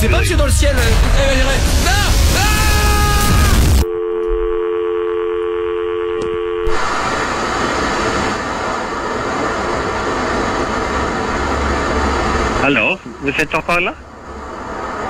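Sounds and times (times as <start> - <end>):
loud rushing noise: 0.0 - 3.8, 6.7 - 15.0
two-tone telephone line tone: 3.8 - 6.8.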